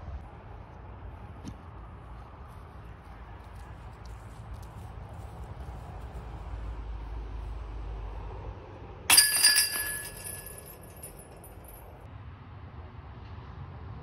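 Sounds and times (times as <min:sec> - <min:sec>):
disc striking basket chains: 0:09.1 - 0:11.8.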